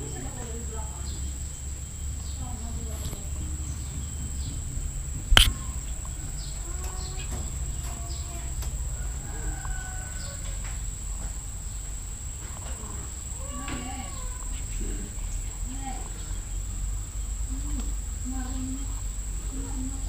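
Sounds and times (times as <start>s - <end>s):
low rumble: 0.0s - 9.7s
faint bird chirps: 0.0s - 10.6s, 11.5s - 20.0s
sharp knock near microphone: 5.2s - 5.7s.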